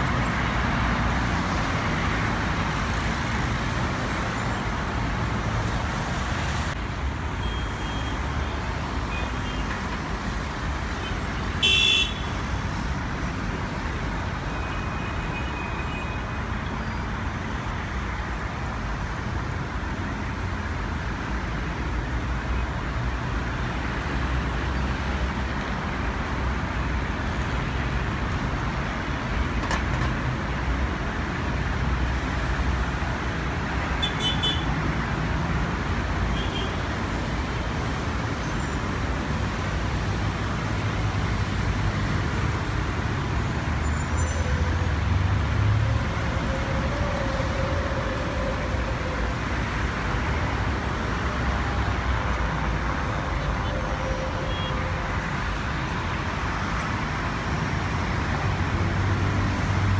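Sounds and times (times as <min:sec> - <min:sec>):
road traffic: 0:00.0 - 0:59.9
car horn toot: 0:11.6 - 0:12.3, 0:53.6 - 0:54.8.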